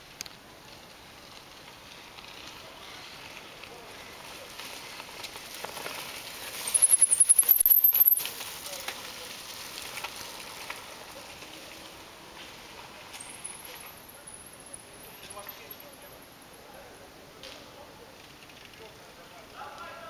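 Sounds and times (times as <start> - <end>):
mountain bike clicking on leaves: 0.0 - 16.7, 17.3 - 20.0.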